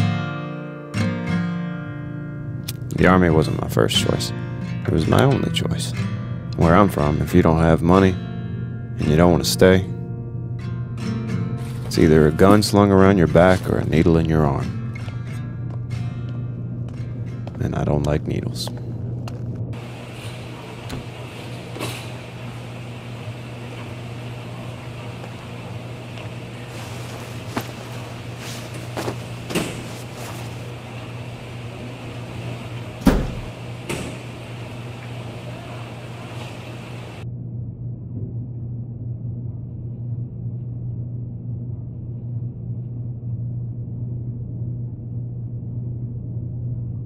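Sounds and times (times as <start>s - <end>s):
steady low hum: 0.0s - 47.0s
washers and dryers running: 19.7s - 37.2s.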